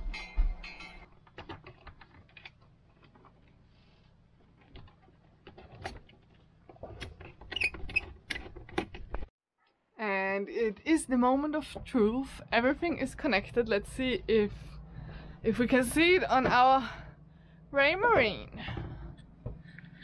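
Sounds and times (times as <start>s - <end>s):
hands handling electrical cables: 0.2s - 3.7s.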